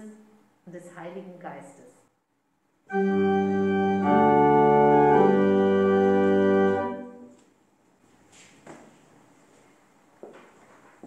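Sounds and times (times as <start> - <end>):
church organ chords: 2.9 - 7.4.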